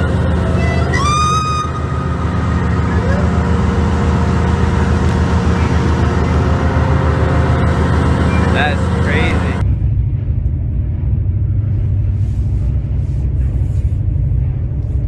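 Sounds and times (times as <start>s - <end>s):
high-pitched rising call: 0.0s - 9.6s
low mechanical hum: 0.0s - 15.0s.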